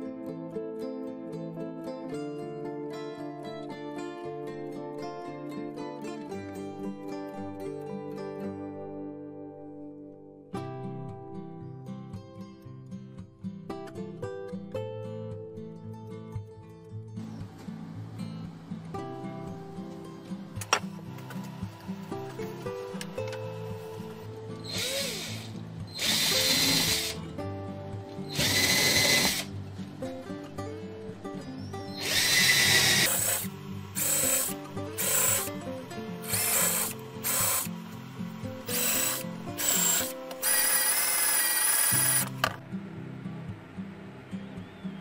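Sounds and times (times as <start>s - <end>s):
cordless drill whining: 24.6s - 27.2s, 28.3s - 29.5s, 31.9s - 35.6s, 36.2s - 37.7s, 38.6s - 42.6s.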